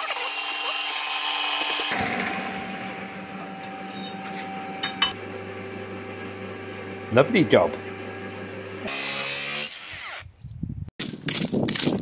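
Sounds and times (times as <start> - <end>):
motor humming: 0.1 - 9.8
sharp metal clank: 1.9 - 5.2.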